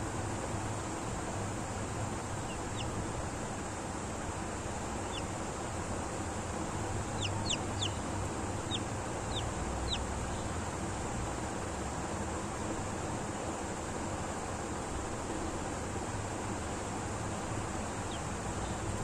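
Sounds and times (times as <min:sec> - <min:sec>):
chick peeping: 0:02.4 - 0:03.0, 0:05.0 - 0:05.4, 0:07.0 - 0:10.5, 0:18.0 - 0:19.0.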